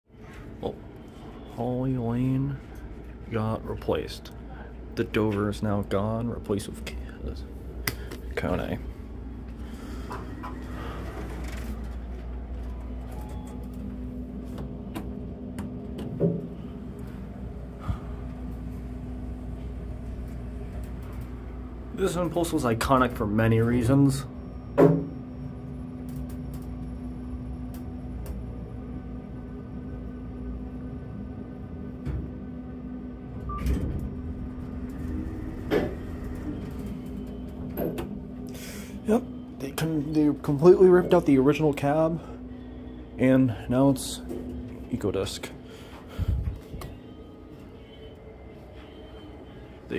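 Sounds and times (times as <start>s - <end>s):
steady hum: 0.1s - 49.9s
elevator doors thumping shut: 33.4s - 34.6s
elevator door clunk: 33.4s - 38.4s.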